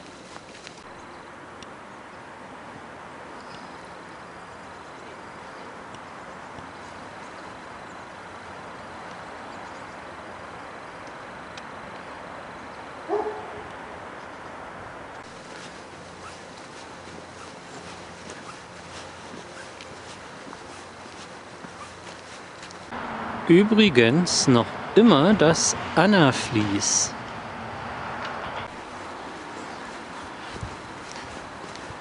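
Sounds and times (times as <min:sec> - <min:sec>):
steady background noise: 0:00.0 - 0:32.0
dog barking: 0:13.1 - 0:13.7
footsteps on leaves: 0:15.2 - 0:23.0, 0:28.7 - 0:32.0.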